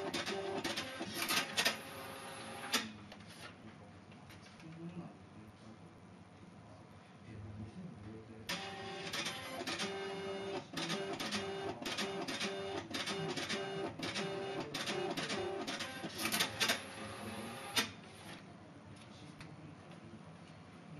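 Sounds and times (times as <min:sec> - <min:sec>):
slip printer chattering: 0:00.0 - 0:02.9, 0:08.5 - 0:18.4.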